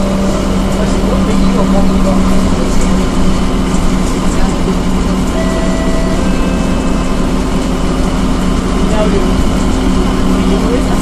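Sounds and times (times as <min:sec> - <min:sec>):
bus engine drone: 0:00.0 - 0:11.0
road and tyre noise: 0:00.0 - 0:11.0.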